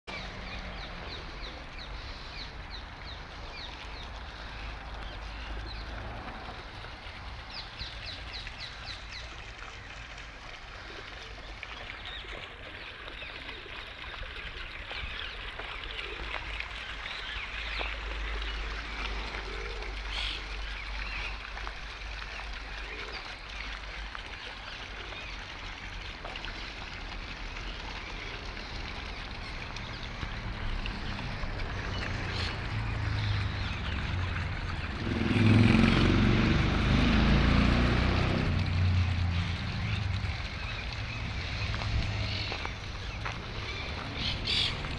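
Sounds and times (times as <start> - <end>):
fountain trickling into stone basin: 0.1 - 44.9
small birds chirping: 10.8 - 23.7, 39.1 - 44.9.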